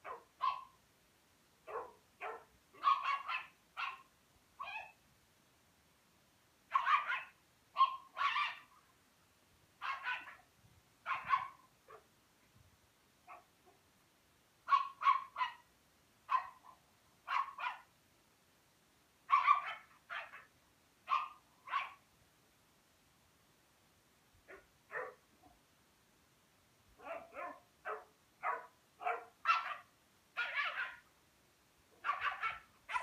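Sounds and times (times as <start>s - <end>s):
dog barking: 0.0s - 0.8s, 1.7s - 5.0s, 6.7s - 8.7s, 9.8s - 10.4s, 11.1s - 12.1s, 13.3s - 13.8s, 14.7s - 15.7s, 16.3s - 17.9s, 19.3s - 20.5s, 21.1s - 22.0s, 24.5s - 25.2s, 27.0s - 31.0s, 32.0s - 33.0s.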